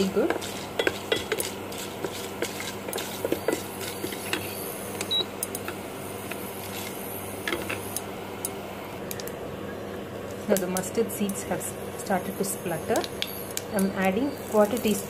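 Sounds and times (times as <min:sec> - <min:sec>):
wooden spatula stirring in pot: 0:00.0 - 0:05.0
oil sizzling in a pot: 0:00.0 - 0:08.3.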